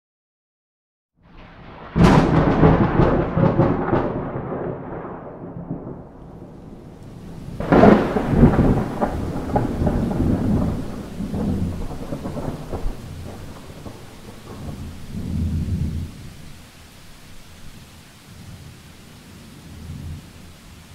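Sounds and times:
thunder rumbling: 1.2 - 20.9
heavy rain hissing: 6.0 - 20.9.

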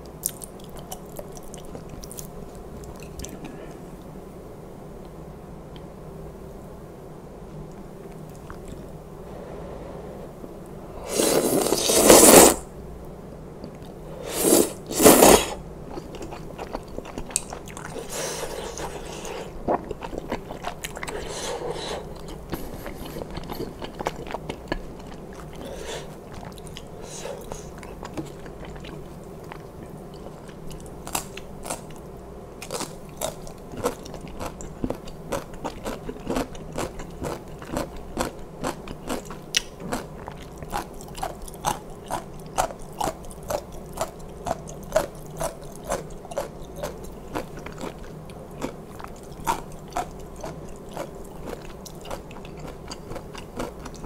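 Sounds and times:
person slurping noodles: 11.0 - 12.7, 14.2 - 15.6, 18.0 - 19.8, 21.0 - 23.8, 25.6 - 26.2
wet chewing: 15.0 - 32.0, 32.6 - 54.0.

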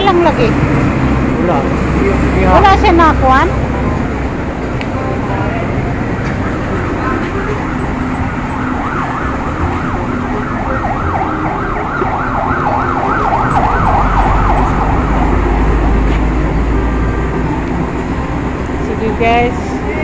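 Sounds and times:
workshop and traffic noise: 0.0 - 20.0
electronic siren yelping: 6.8 - 16.0.

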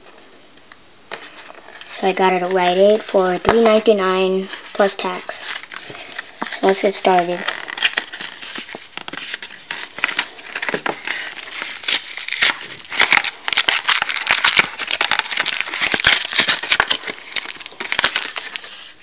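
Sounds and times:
foil wrapper crinkling and tearing: 1.2 - 19.0.

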